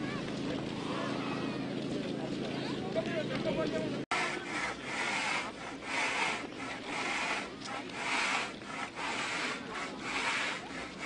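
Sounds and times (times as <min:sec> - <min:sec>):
snow shovel scraping ice: 0:04.1 - 0:11.0.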